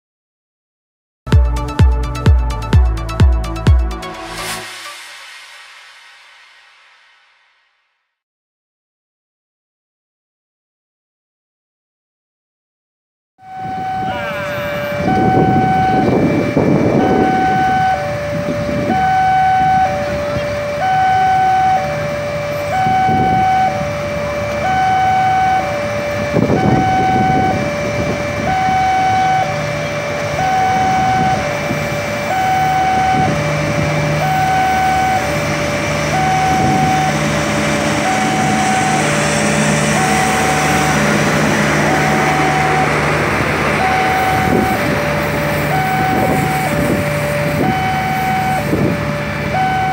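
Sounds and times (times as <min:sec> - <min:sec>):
diesel hum: 0:01.3 - 0:07.9, 0:13.4 - 0:49.9
train coaches rolling past: 0:02.6 - 0:07.8, 0:13.5 - 0:49.9
level crossing two-tone alarm: 0:13.4 - 0:49.9.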